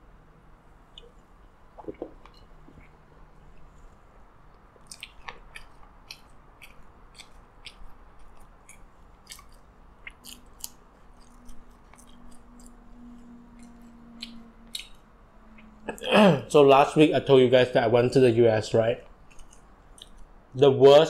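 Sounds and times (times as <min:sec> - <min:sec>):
faint low hum: 0:00.0 - 0:21.0
chewing with wet mouth clicks: 0:01.8 - 0:03.8, 0:04.5 - 0:16.0, 0:19.0 - 0:20.3.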